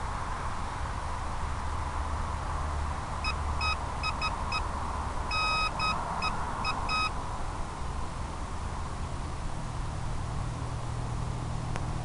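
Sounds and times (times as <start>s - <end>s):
electronic beeps: 3.2s - 4.7s, 5.3s - 7.1s.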